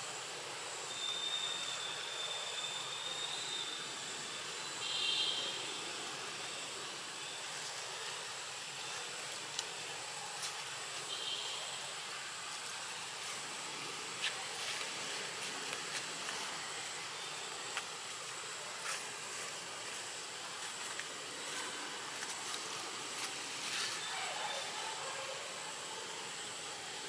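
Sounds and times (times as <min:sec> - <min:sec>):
forest ambience hiss: 0:00.0 - 0:27.0
high-pitched insect drone: 0:00.1 - 0:08.9.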